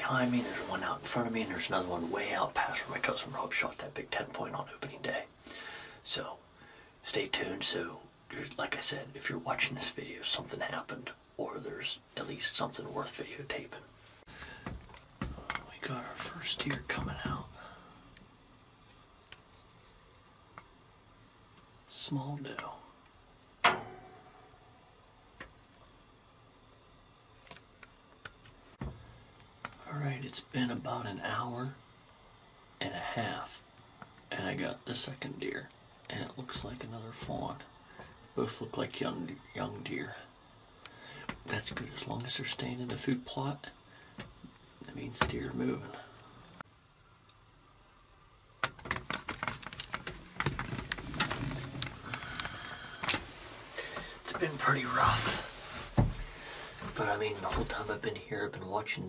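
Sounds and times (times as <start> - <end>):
sharp knock with ringing tail: 23.6 - 24.5.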